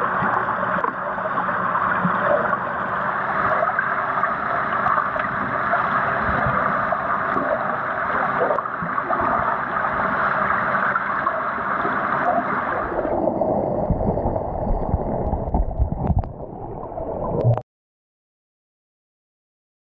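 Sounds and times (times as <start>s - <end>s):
muffled underwater rush and gurgle: 0.0s - 17.6s.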